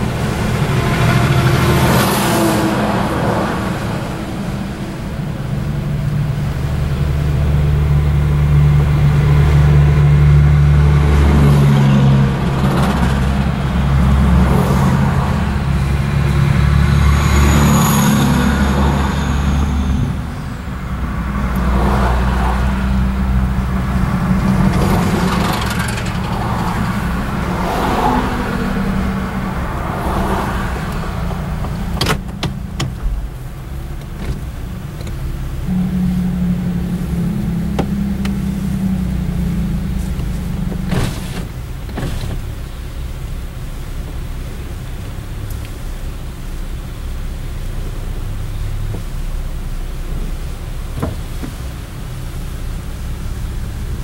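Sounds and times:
car engine and tyre drone: 0.0s - 54.0s
passing vehicles whooshing: 0.0s - 54.0s
high whistling tone: 17.0s - 20.7s.

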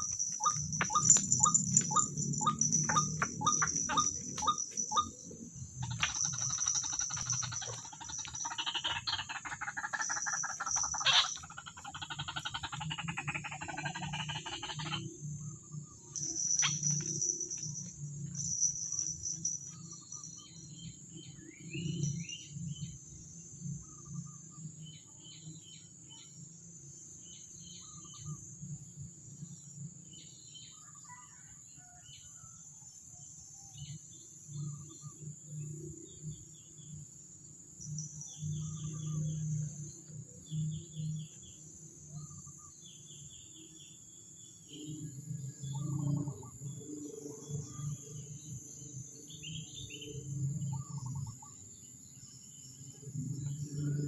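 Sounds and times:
small birds chirping: 0.0s - 15.1s
high-pitched insect drone: 0.0s - 29.7s, 33.9s - 54.0s.

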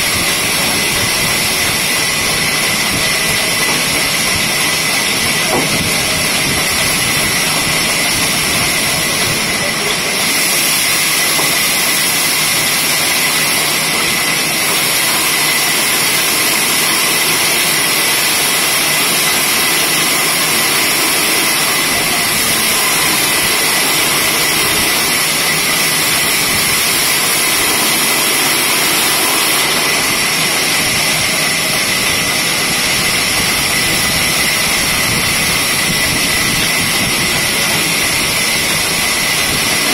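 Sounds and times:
band saw whining through log: 0.0s - 39.9s.

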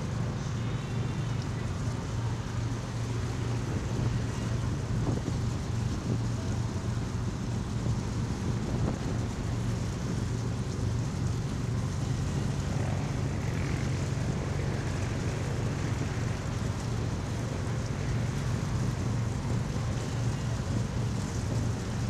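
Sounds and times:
boat engine droning: 0.0s - 22.0s
water noise: 0.0s - 22.0s
wind noise: 1.6s - 22.0s.

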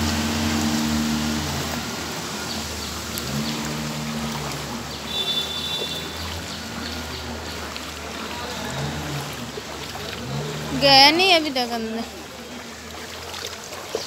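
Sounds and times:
low hum: 0.0s - 5.0s
flowing splashing floodwater: 0.0s - 14.0s.

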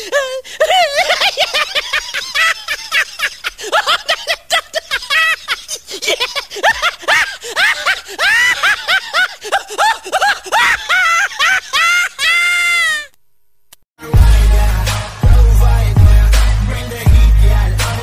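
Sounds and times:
high-pitched squealing laughter: 0.1s - 13.2s.

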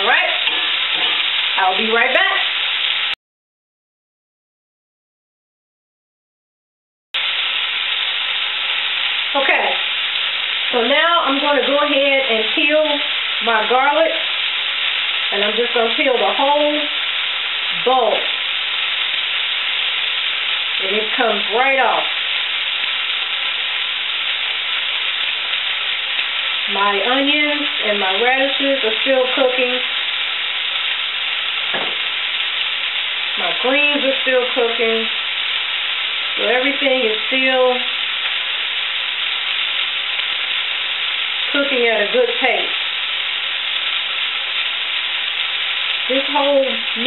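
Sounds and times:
woman talking: 0.0s - 0.6s, 1.6s - 2.5s, 9.3s - 9.8s, 10.7s - 14.3s, 15.3s - 17.0s, 17.8s - 18.4s, 20.8s - 22.2s, 26.7s - 29.9s, 33.4s - 35.2s, 36.4s - 37.9s, 41.5s - 42.8s, 46.1s - 47.0s
onions sizzling in a skillet: 0.0s - 3.2s, 7.2s - 47.0s.

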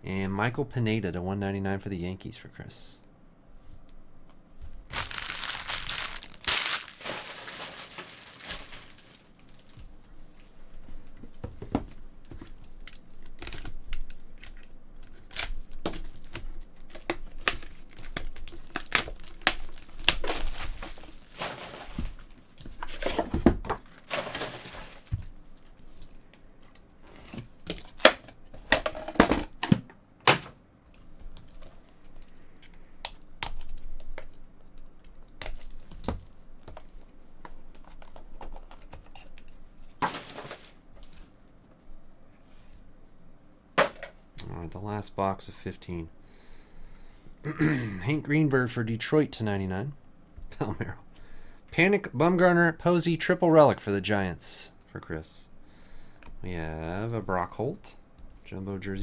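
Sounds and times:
plastic wrapper crinkling and tearing: 4.9s - 9.8s, 12.8s - 22.4s.

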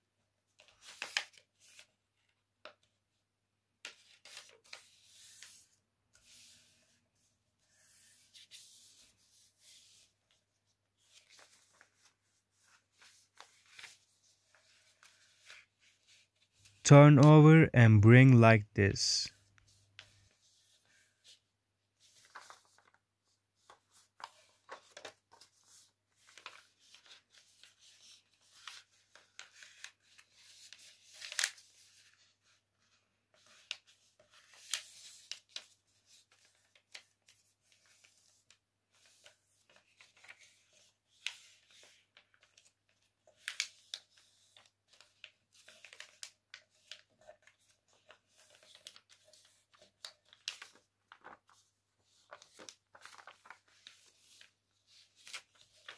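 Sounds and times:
paper rustling and creasing: 3.8s - 7.0s, 11.0s - 16.8s, 22.0s - 55.9s.

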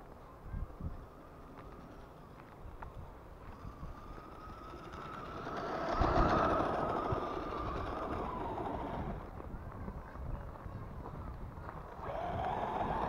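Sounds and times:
rc car motor whining: 0.9s - 9.6s, 11.8s - 13.0s.

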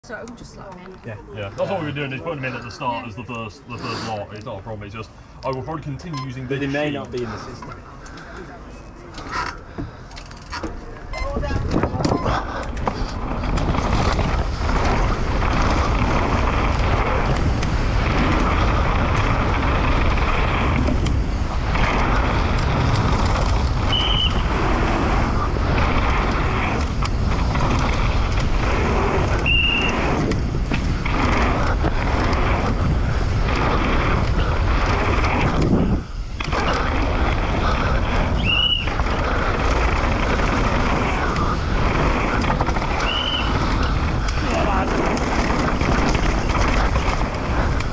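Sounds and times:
bike tyres rattling on ground: 4.1s - 47.9s
short high squeaks: 10.2s - 12.6s
wind rushing on microphone: 11.1s - 47.9s.

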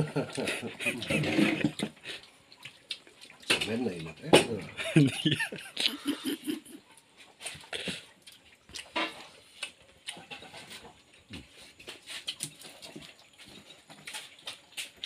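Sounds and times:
wet mouth smacks and chewing: 2.5s - 3.5s, 7.4s - 10.2s.

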